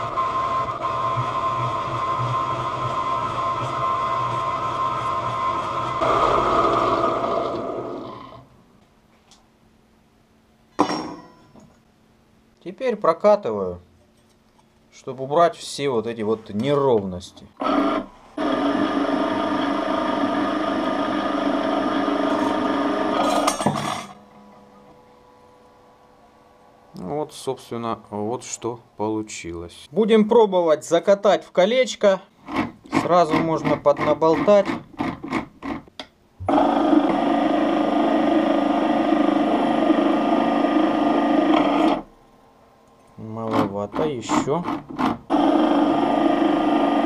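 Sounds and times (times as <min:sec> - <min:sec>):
electric motor and chain drive hum: 0:17.6 - 0:25.0, 0:35.1 - 0:42.1, 0:42.8 - 0:47.0
rolling machine whirring: 0:17.6 - 0:25.0.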